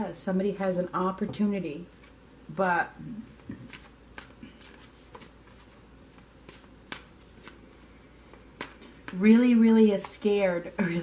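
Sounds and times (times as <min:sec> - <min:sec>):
cards being shuffled: 0:03.6 - 0:07.6, 0:08.2 - 0:09.4.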